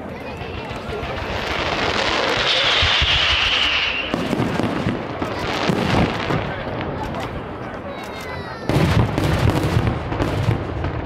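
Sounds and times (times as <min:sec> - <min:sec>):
fireworks crackling whine: 0:00.0 - 0:07.6
firework booms and cracks: 0:00.3 - 0:07.5, 0:08.6 - 0:11.0.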